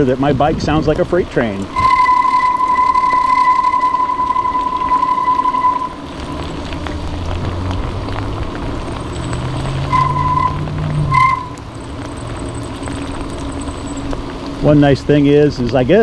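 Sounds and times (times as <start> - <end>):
bicycle riding noise: 0.0 - 16.0
bicycle brake squealing: 1.7 - 6.4, 9.2 - 11.8.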